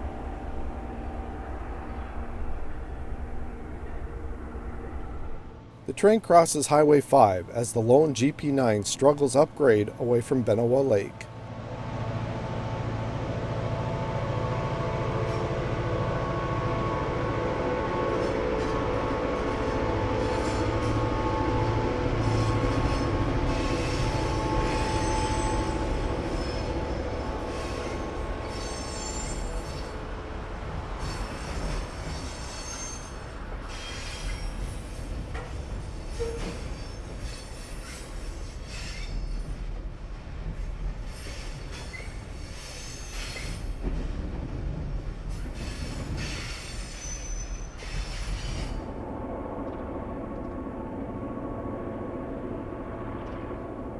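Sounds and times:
diesel locomotive engine drone: 0.0 - 53.9
wheel flanges squealing: 22.2 - 30.0, 31.0 - 39.6, 45.3 - 48.8.

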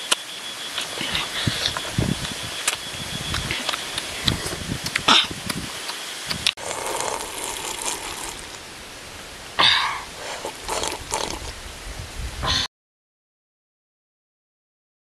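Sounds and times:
chewing and lip smacking: 6.6 - 8.6, 10.2 - 11.6
loud slurp from a cup: 6.6 - 8.6, 10.0 - 11.6.

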